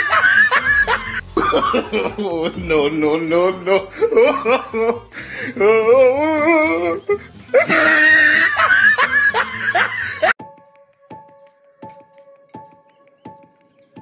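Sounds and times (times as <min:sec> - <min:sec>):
sparse music with plinks: 0:00.0 - 0:08.1, 0:08.8 - 0:14.0
person laughing: 0:00.0 - 0:10.4.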